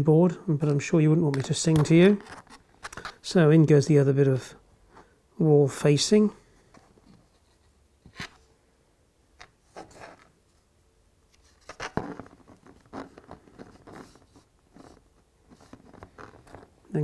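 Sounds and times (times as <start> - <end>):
plastic parts clicking and scraping: 0.6 - 3.2.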